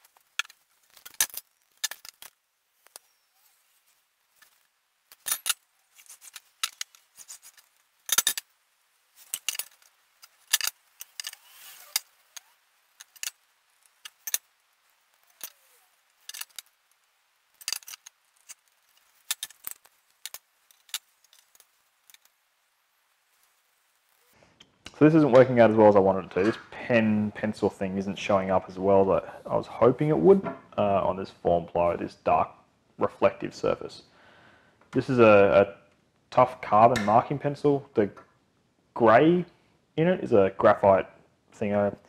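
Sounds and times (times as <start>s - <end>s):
metal tools clinking on board: 4.4s - 8.4s, 9.2s - 13.4s, 15.3s - 16.7s, 17.5s - 22.2s.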